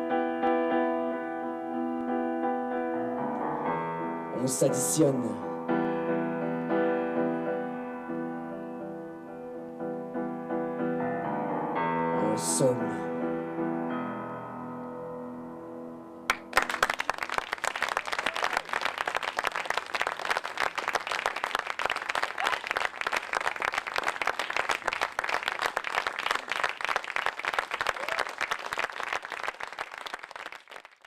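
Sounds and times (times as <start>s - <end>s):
audience applauding: 16.3s - 31.0s.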